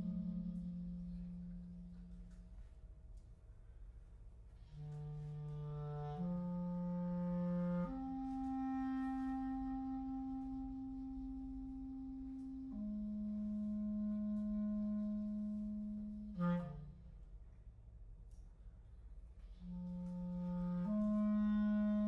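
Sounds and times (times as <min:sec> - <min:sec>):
clarinet playing: 0:00.0 - 0:02.7, 0:04.6 - 0:17.1, 0:19.5 - 0:22.0.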